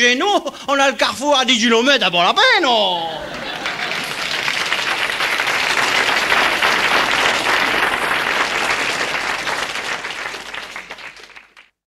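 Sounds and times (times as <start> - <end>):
audience applauding: 3.1 - 11.8.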